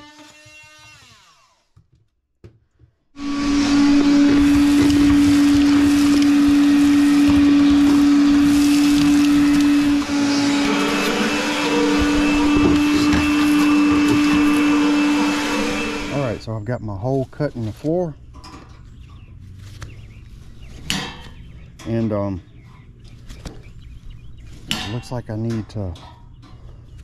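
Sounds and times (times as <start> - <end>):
shop vacuum running: 3.2 - 16.5.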